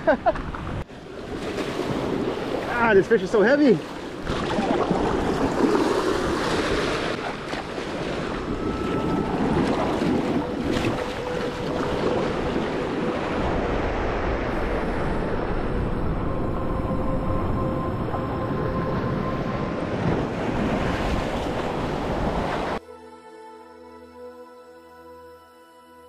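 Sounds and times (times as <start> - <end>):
waves washing against jetty: 0.3 - 16.9, 17.8 - 22.8
wind buffeting microphone: 4.0 - 22.8.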